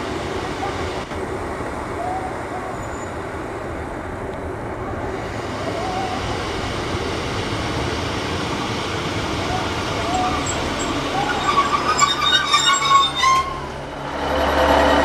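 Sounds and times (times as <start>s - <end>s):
diesel train engine: 0.0s - 15.0s
wheels on rail running noise: 0.0s - 15.0s
faint short squeals: 10.2s - 13.7s.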